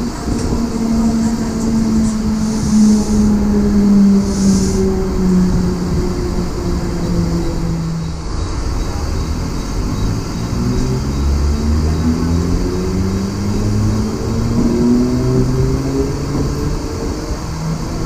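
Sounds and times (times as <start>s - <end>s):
train motors whining: 0.0s - 18.0s
wheels rumbling on rails: 0.0s - 18.0s.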